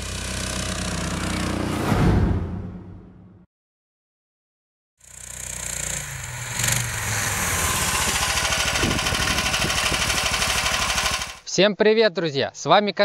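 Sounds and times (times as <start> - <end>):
snowmobile engine running under load: 0.0 - 1.8, 5.0 - 11.4.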